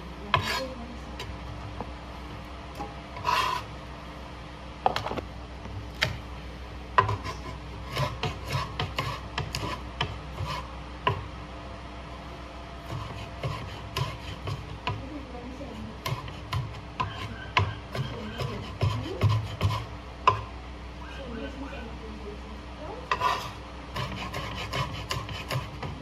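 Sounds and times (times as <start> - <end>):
steady low hum: 0.0 - 26.0
cleaver chopping on cutting board: 16.0 - 20.5.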